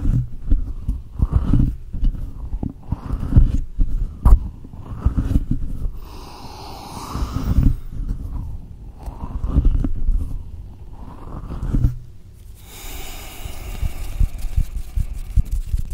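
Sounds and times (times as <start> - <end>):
hands rubbing over a microphone: 0.0 - 15.9.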